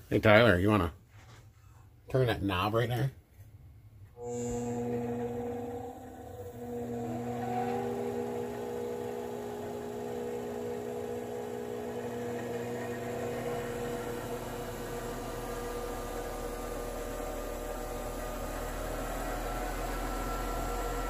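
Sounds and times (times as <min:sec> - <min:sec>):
lower hum: 0:04.2 - 0:20.9
treadmill motor humming: 0:04.2 - 0:21.0.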